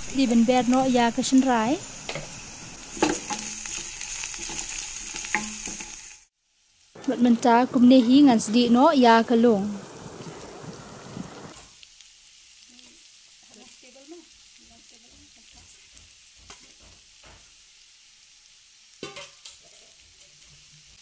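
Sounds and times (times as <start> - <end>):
bamboo shoots sizzling in a pan: 0.0 - 21.0
soft knocks in a pan: 15.1 - 17.5.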